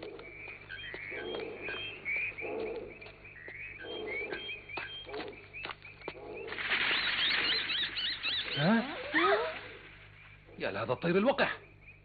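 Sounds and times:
bird chirps: 0.0 - 12.0
wings flapping: 6.1 - 10.1.

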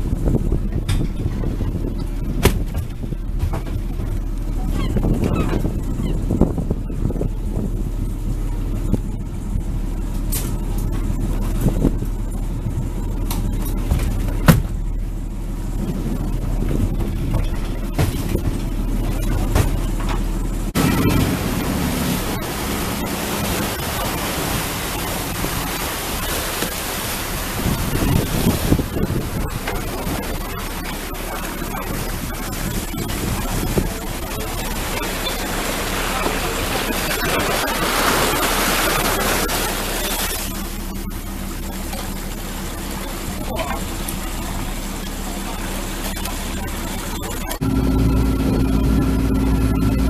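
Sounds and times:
wind on microphone: 0.0 - 15.0, 15.6 - 19.9, 20.7 - 40.6
boat engine drone: 0.0 - 50.0
low steady hum: 0.0 - 50.0
water rushing at sea: 0.0 - 50.0
wind rushing: 26.8 - 30.5.

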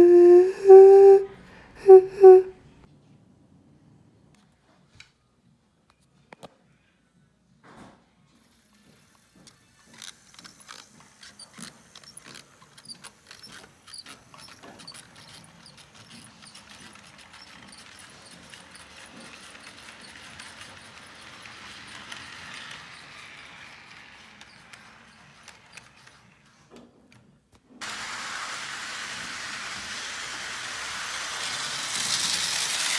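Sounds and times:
model train wheel clicks: 9.5 - 26.5, 28.3 - 32.9
model train rolling rumble: 9.9 - 26.5, 27.8 - 32.9.

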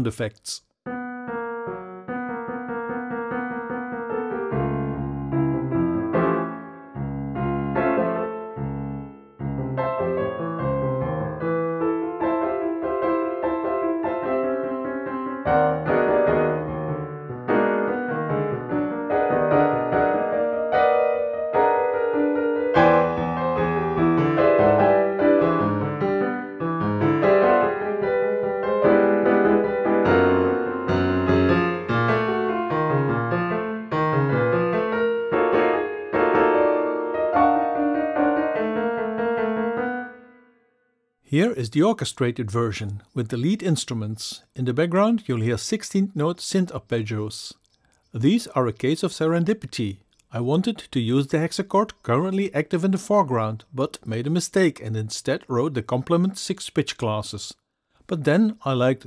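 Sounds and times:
piano playing atonal melody: 0.9 - 41.1.

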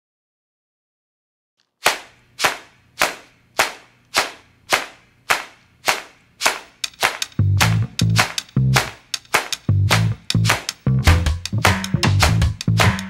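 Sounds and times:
sharp clap-like percussion hits: 1.8 - 13.0.

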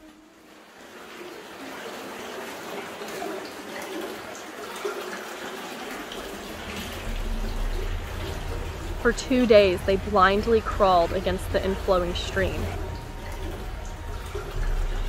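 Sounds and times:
stream water flowing: 0.0 - 15.0
low rumble: 6.2 - 15.0.

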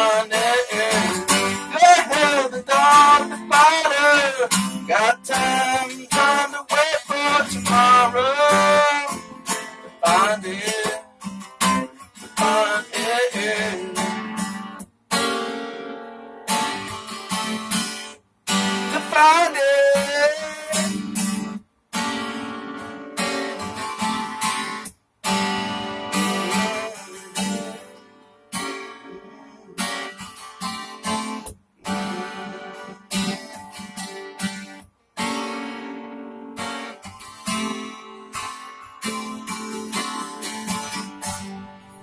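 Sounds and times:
acoustic guitar strumming: 0.0 - 42.0.

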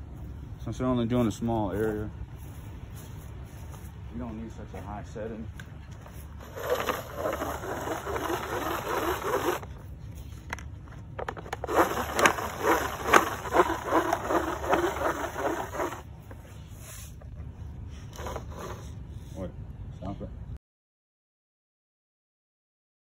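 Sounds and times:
crank spreader whirring rattle: 6.4 - 9.7, 11.2 - 16.1.

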